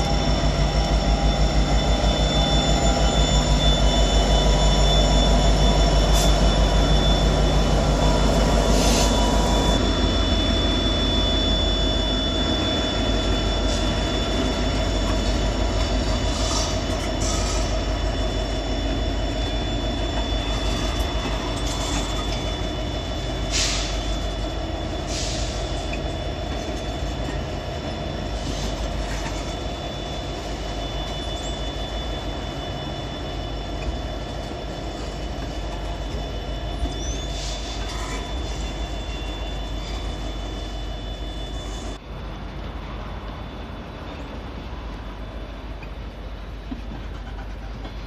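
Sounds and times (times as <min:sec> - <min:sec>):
high wheel whine: 0:00.0 - 0:48.0
train wheels rumbling on rail: 0:00.0 - 0:48.0
wheel screeches: 0:25.0 - 0:31.7.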